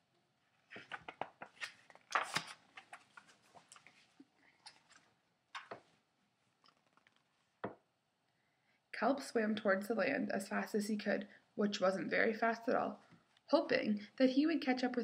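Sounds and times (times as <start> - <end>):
paper pages rustling: 0.6 - 6.0, 6.6 - 7.5.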